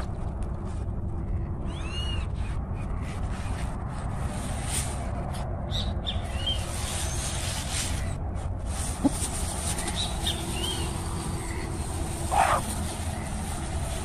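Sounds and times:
steady low rumble: 0.0 - 14.0
birds chirping: 9.7 - 14.0.

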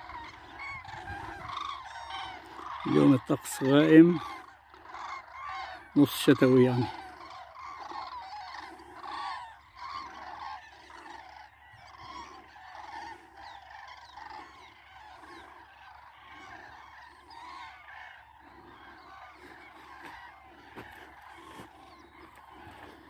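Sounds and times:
cranes calling in chorus: 0.0 - 23.0.

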